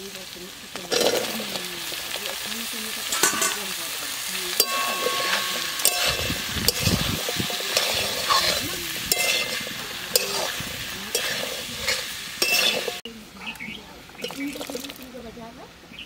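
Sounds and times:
food sizzling in a wok: 0.0s - 13.1s, 13.7s - 15.6s
metal spatula scraping a wok: 0.8s - 13.1s.

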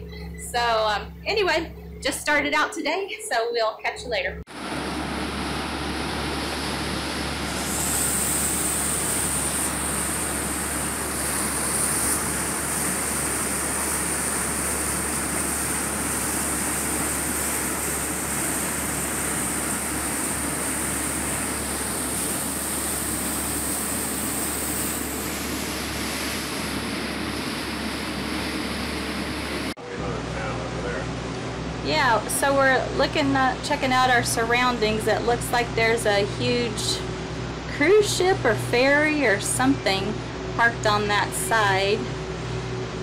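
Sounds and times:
boat engines humming: 0.0s - 43.0s.

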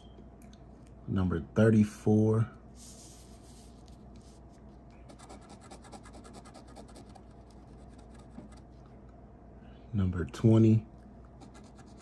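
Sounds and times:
coin scratching a ticket: 5.1s - 8.3s.

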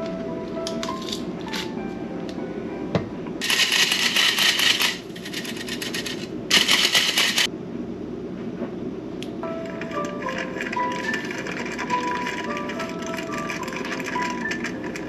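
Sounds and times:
flour sifter rattling: 3.4s - 7.5s, 10.2s - 15.0s.

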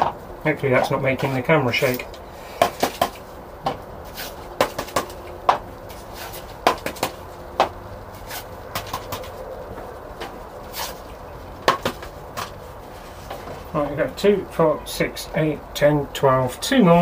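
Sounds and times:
plastic pots clicking and knocking: 0.0s - 1.4s, 4.6s - 7.8s, 8.7s - 10.4s, 11.6s - 12.6s.

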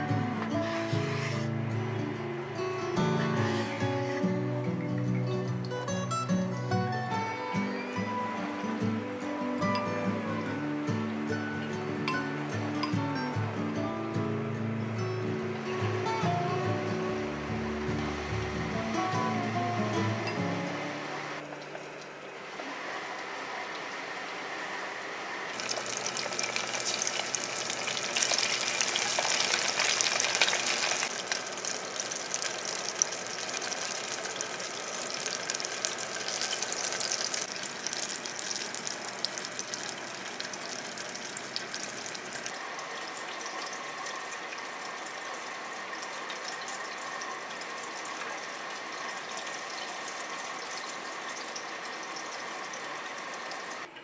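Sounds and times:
fish deep-frying in oil: 25.4s - 53.9s.

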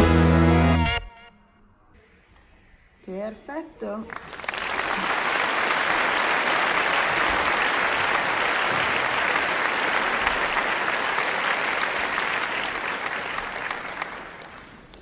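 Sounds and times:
crowd applauding: 4.1s - 15.0s.

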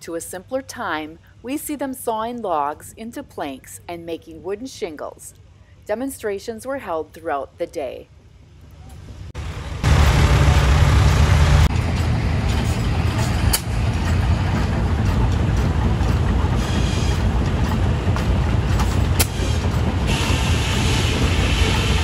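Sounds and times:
tractor engine low rumble: 8.6s - 22.0s.

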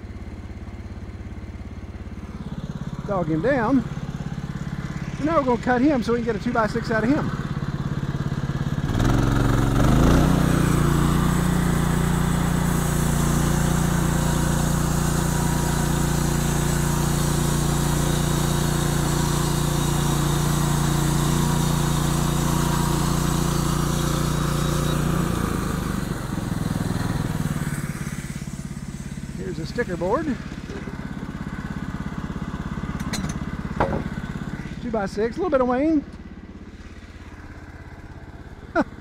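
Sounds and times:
sawmill engine running: 0.0s - 39.0s
bandsaw blade cutting wood: 9.0s - 31.0s.

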